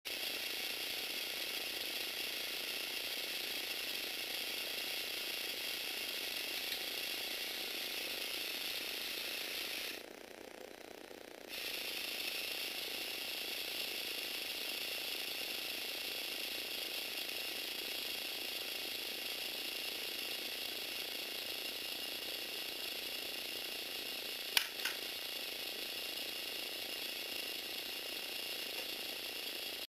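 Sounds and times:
toy electric motor whirring: 0.1 - 29.9
sharp clicks: 24.6 - 25.1.

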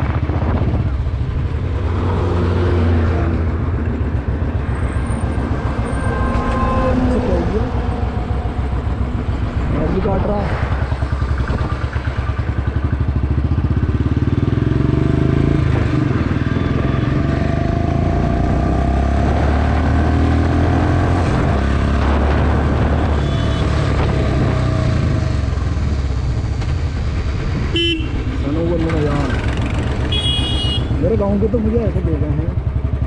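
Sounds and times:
motorcycle engine running: 0.0 - 19.8, 21.5 - 33.0.

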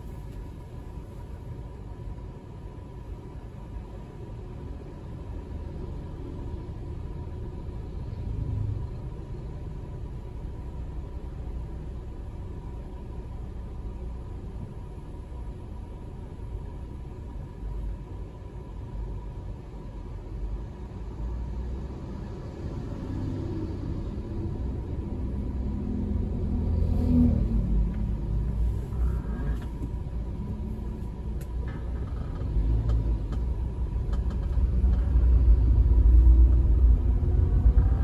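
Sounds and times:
car engine and tyre noise: 0.0 - 38.0
passing truck rumble: 21.6 - 38.0.

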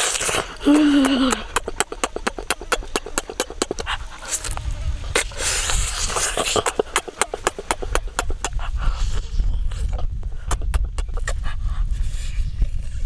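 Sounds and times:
wet lip-smacking clicks: 0.0 - 9.0, 9.7 - 11.4
breathy rush of air: 0.0 - 10.6
person chewing: 0.0 - 11.4.

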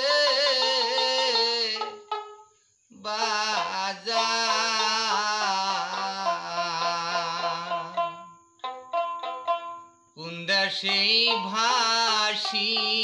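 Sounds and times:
man singing folk song: 0.0 - 2.2, 2.9 - 8.3, 10.2 - 13.0
plucked lute: 4.2 - 9.8, 10.9 - 13.0.

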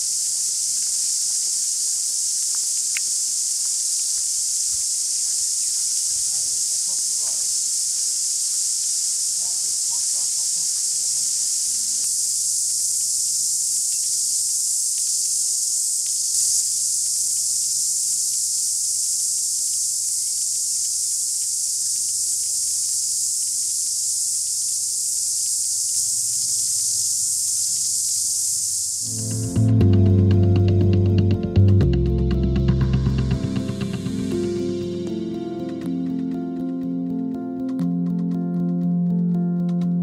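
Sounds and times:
cicadas chorus: 0.0 - 37.9.

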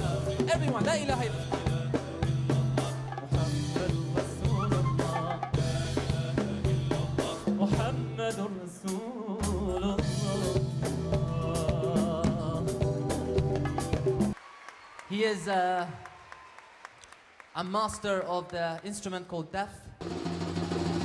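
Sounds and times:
drum kit beat: 0.0 - 14.4.

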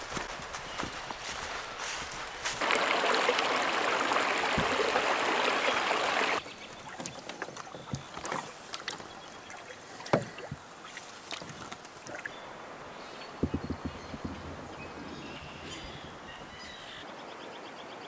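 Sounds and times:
canoe paddling splashes: 0.0 - 17.1
water rushing through dam gap: 2.4 - 6.4
paddle knocking against canoe: 4.3 - 5.6, 6.8 - 9.2, 10.0 - 10.7, 13.3 - 16.9.

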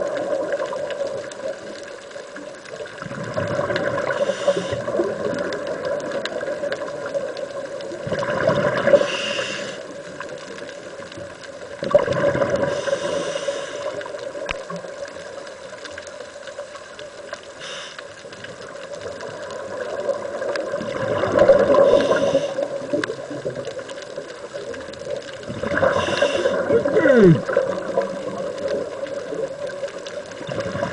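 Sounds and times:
exhaled air bubbling: 0.0 - 16.0, 16.6 - 30.9
regulator hissing inhale: 4.2 - 5.0, 8.9 - 10.0, 12.7 - 14.2, 17.6 - 18.2, 21.7 - 22.8, 25.8 - 26.7.

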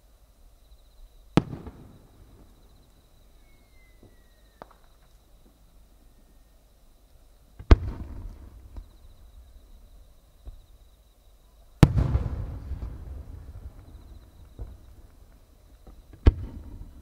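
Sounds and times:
firework booms: 1.3 - 2.7, 7.6 - 10.7, 11.8 - 17.0
rolling echo: 1.4 - 2.6, 7.6 - 9.6, 11.8 - 17.0.

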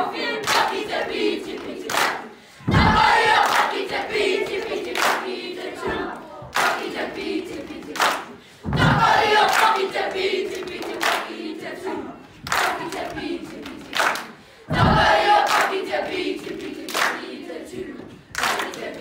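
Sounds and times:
children chanting in unison: 0.0 - 19.0
claps and chest slaps: 0.4 - 0.8, 1.5 - 5.4, 6.5 - 11.4, 12.4 - 17.4, 18.3 - 19.0.

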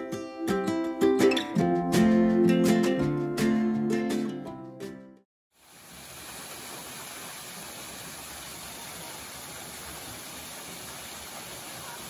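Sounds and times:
guitar music: 0.0 - 5.2
waterfall splashing into pool: 5.6 - 12.0.

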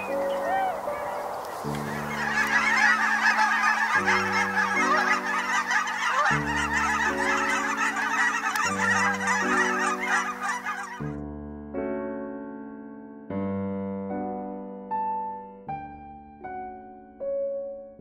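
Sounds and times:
geese honking: 0.0 - 11.2
slow piano chords: 0.0 - 18.0.

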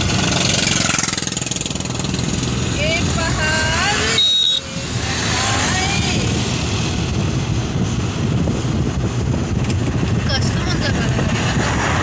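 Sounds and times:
road noise from moving vehicle: 0.0 - 12.0
wind buffeting microphone: 4.8 - 12.0.

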